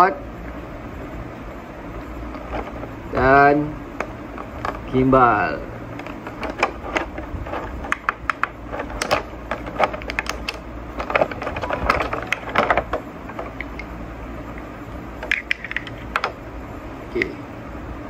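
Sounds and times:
plastic packaging crackling and clicking: 2.3 - 2.9, 4.0 - 4.9, 5.9 - 13.9, 15.2 - 16.4.

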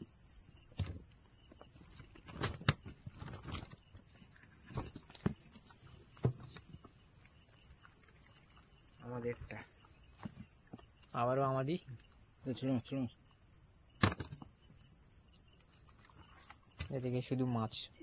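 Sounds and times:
crickets chirring: 0.0 - 18.0
fishing net knocks and rustles: 0.7 - 6.9.

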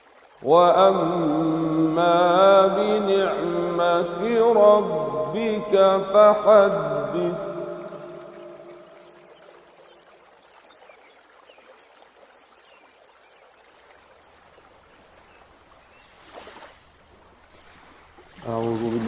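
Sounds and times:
background hiss: 0.0 - 15.4
person reciting: 0.4 - 8.8, 18.4 - 19.0.

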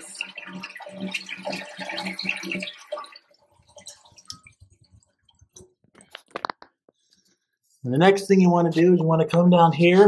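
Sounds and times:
toilet flushing: 0.0 - 4.5
water drips and trickles: 0.0 - 6.3.

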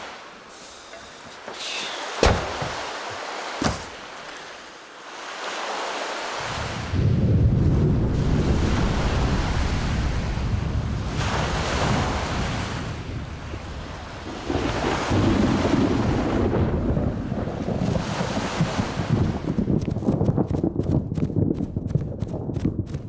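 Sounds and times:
sea waves: 0.0 - 19.5
wind: 0.0 - 23.0
sharp knock: 2.2 - 2.8
heavy rumble of surf: 5.4 - 22.9.

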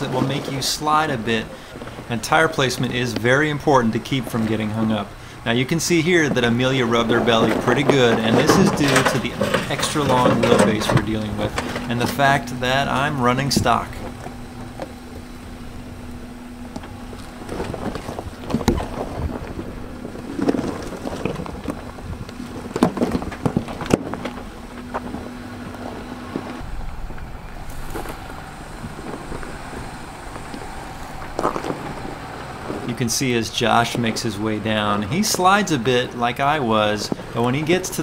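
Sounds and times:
engine running at low speed: 0.0 - 38.0
tires crunching over stones: 0.0 - 38.0
wind on microphone: 12.4 - 33.1.

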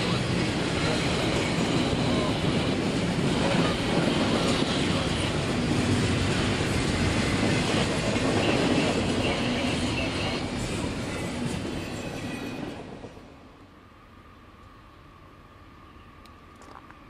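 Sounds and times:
train wheels rolling on rails: 0.0 - 13.4.

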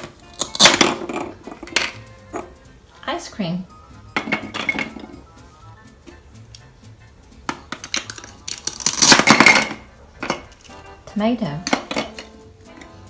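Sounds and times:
plastic toy pieces clacking: 0.4 - 2.0, 7.5 - 10.8
velcro tearing: 8.0 - 9.3.

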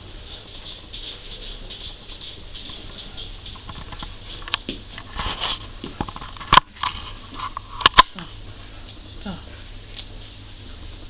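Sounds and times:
puppy claws pattering and shuffling: 0.0 - 8.0.

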